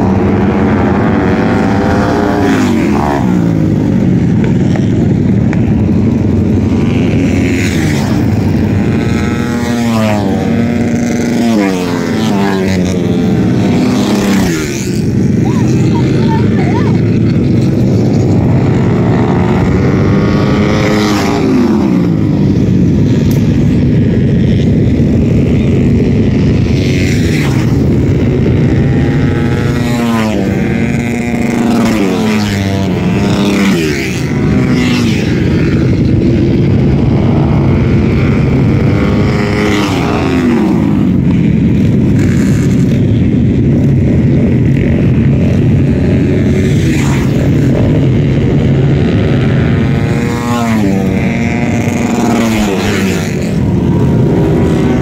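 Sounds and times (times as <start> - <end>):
racing motorcycle engines droning: 0.0 - 55.0.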